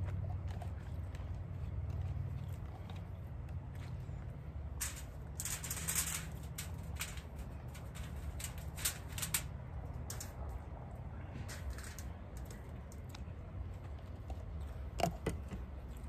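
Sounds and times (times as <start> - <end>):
steady low hum: 0.0 - 16.0
aluminium foil crinkling: 4.8 - 9.5.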